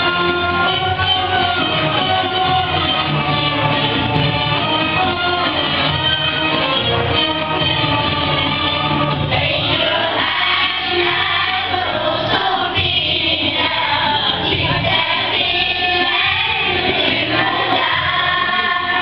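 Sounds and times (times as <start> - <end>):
girls choir singing: 9.2 - 19.0.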